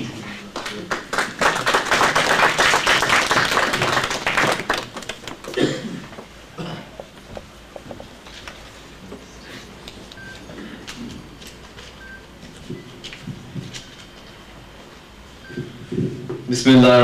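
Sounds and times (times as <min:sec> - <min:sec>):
audience applauding: 0:00.5 - 0:06.3.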